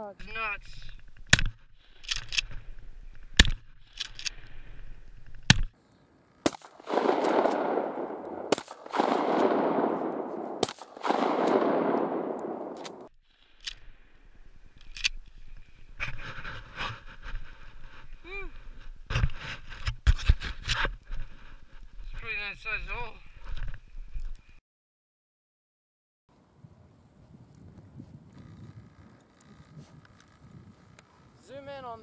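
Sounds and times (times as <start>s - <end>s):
sharp cracks: 0.6s - 5.8s, 6.4s - 13.9s
shotgun pump racking: 1.0s - 4.6s
shotgun shots: 6.4s - 13.1s.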